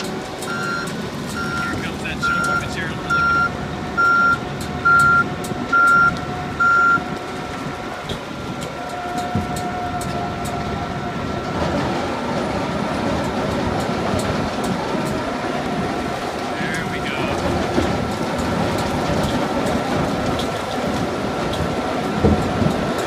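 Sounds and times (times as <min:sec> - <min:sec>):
grinder and conveyor running: 0:00.0 - 0:23.0
reversing alarm beeping: 0:00.4 - 0:07.1.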